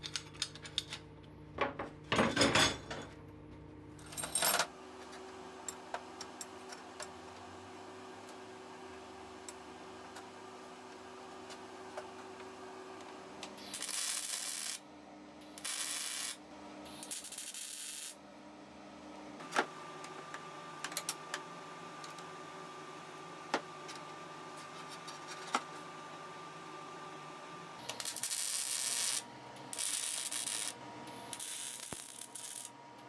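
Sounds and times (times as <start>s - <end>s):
welding hiss: 13.6s - 14.8s, 15.5s - 18.2s, 27.9s - 32.7s.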